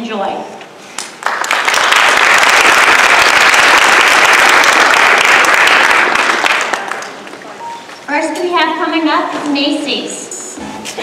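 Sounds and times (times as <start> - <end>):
audience applauding: 1.0 - 7.5.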